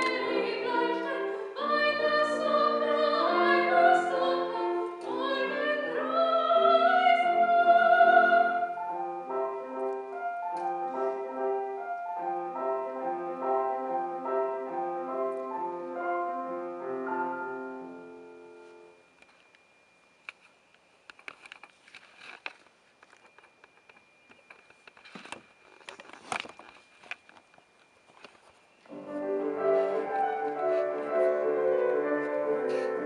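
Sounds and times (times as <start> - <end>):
soprano singing: 0.0 - 9.7
grand piano playing: 0.0 - 19.0, 28.9 - 33.0.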